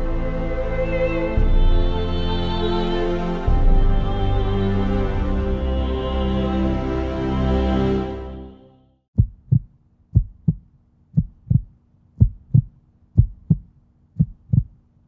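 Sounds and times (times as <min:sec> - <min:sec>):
background music: 0:00.0 - 0:08.9
heartbeat thuds: 0:09.2 - 0:14.8.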